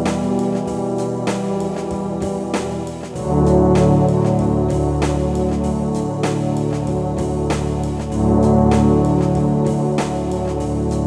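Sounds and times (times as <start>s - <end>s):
background music held chords: 0.0s - 11.0s.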